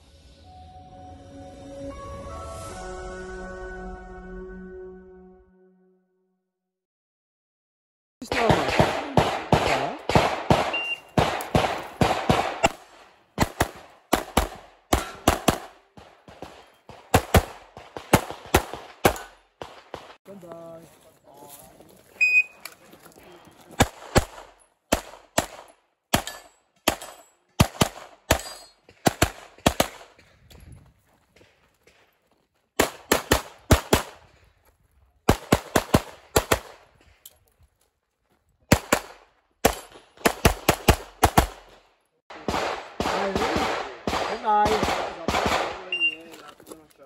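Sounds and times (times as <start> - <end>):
pistol shots: 8.2 - 20.2, 23.7 - 30.2, 32.8 - 34.2, 35.3 - 36.9, 38.7 - 46.2
shot timer beep: 10.7 - 11.1.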